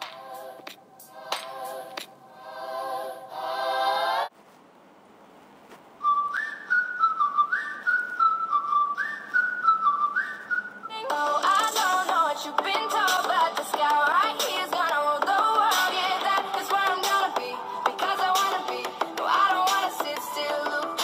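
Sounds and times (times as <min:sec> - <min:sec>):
pop music with singing: 0:00.0 - 0:04.3, 0:10.9 - 0:21.0
whistled melody: 0:06.0 - 0:11.1.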